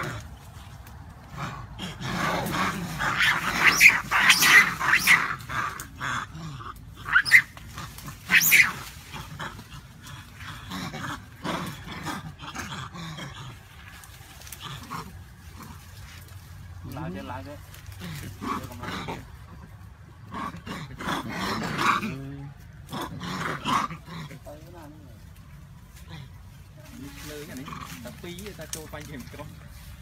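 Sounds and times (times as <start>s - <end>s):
low monkey calls: 1.8s - 13.6s
macaques screaming: 1.9s - 12.7s.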